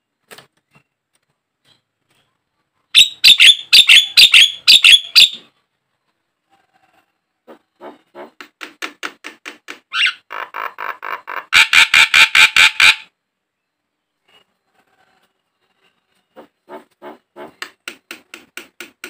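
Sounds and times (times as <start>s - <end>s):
bird chattering: 3.0s - 5.4s.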